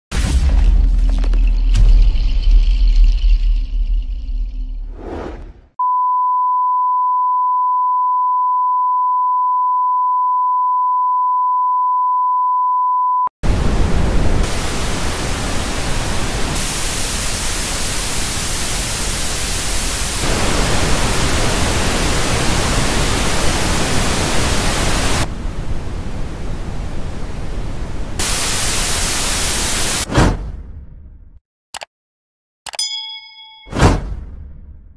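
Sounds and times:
steady test tone beep: 5.8s - 13.3s
tv static hiss: 14.4s - 25.2s, 28.2s - 30.0s.

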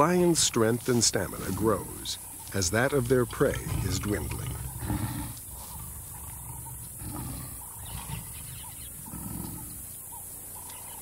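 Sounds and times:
lioness growling low: 1.3s - 10.0s.

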